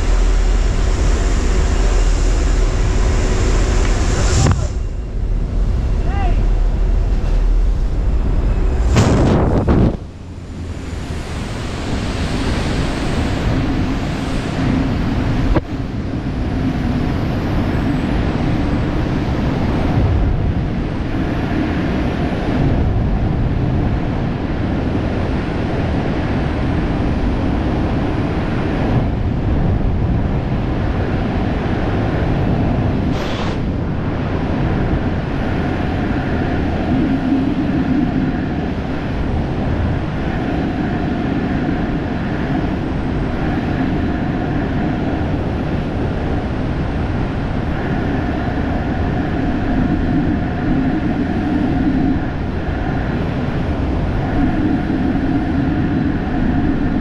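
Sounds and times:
freefall wind rushing: 0.0s - 57.0s.

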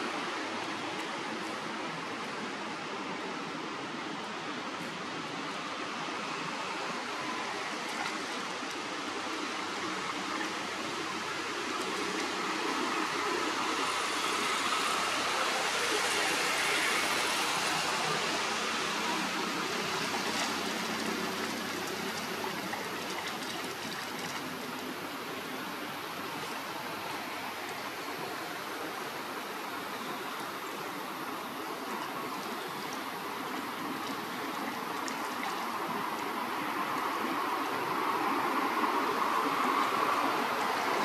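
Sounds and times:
steady rushing noise: 0.0s - 41.0s.

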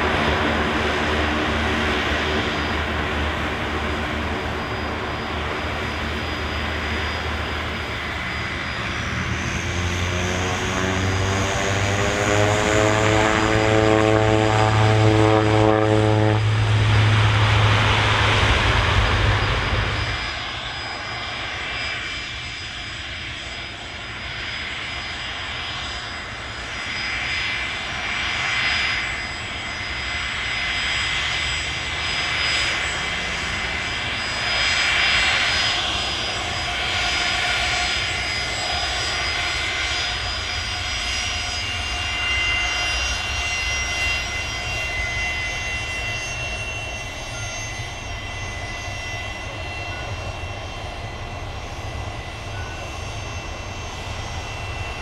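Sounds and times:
rushing engine noise: 0.0s - 21.8s
airliner engines running: 0.0s - 55.0s.

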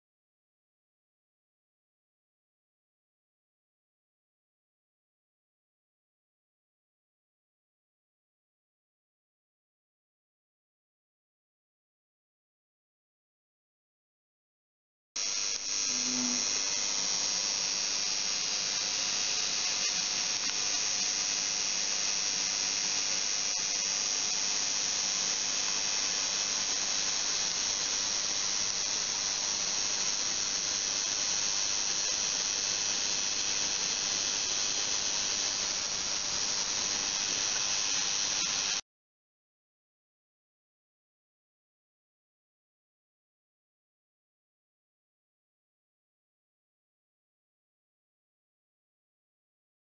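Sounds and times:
high-pitched hiss and whine: 15.2s - 38.8s.

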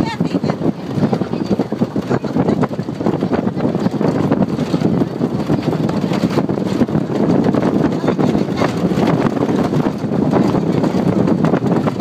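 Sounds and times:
pickup truck rumbling on dirt road: 0.0s - 12.0s
wind buffeting microphone: 0.0s - 12.0s
knocks and rattles: 0.2s - 12.0s.

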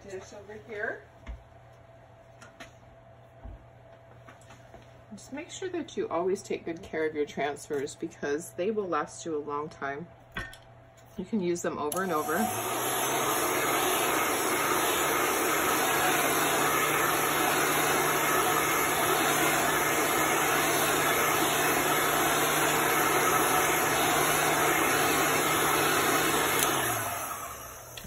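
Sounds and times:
hot-air blower running: 11.8s - 28.0s.

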